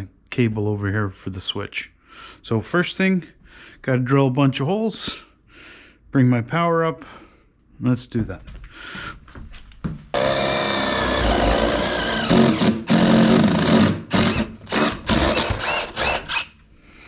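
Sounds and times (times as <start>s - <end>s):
power drill boring: 10.2s - 16.6s.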